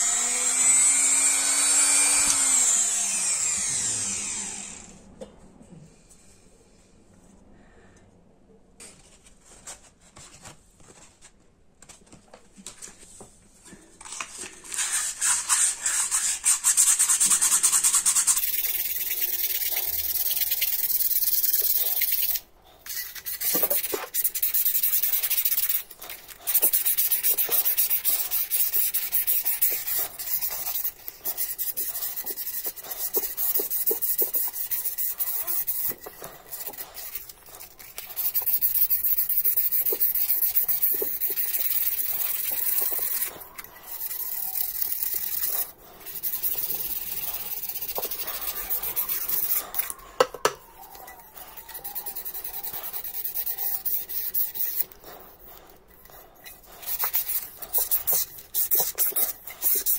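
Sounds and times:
sandpaper rasping on metal bowl: 14.7s - 49.9s, 50.7s - 59.9s.

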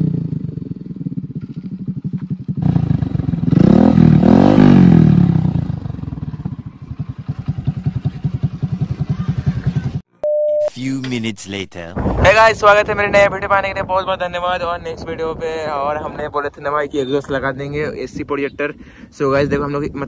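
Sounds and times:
motorcycle engine idling and revving: 0.0s - 10.1s.

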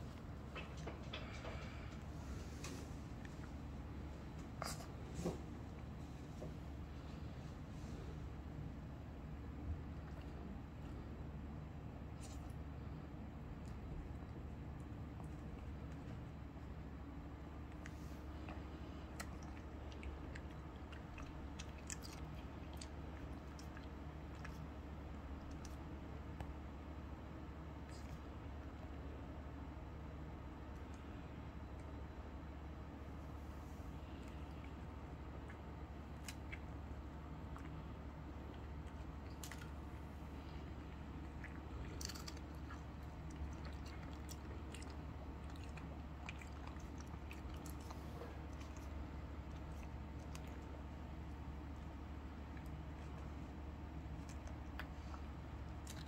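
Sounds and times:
dog chewing a treat: 34.2s - 56.0s.

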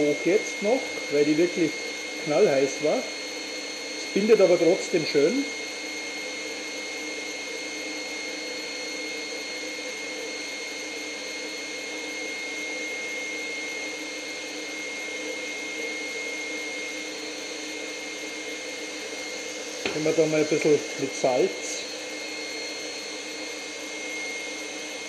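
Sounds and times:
stand mixer whirring: 0.0s - 25.0s.

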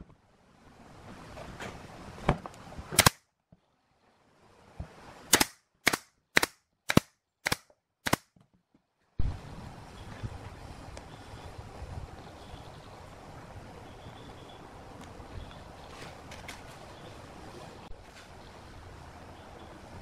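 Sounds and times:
nail gun firing into wood: 3.0s - 3.2s, 5.3s - 8.3s
steady background hiss: 9.1s - 20.0s.

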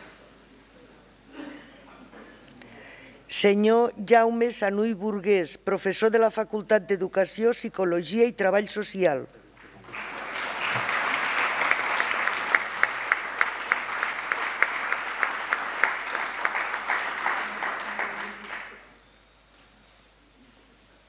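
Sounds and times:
audience applauding: 9.6s - 18.9s
nearby hands clapping steadily: 9.7s - 18.8s.

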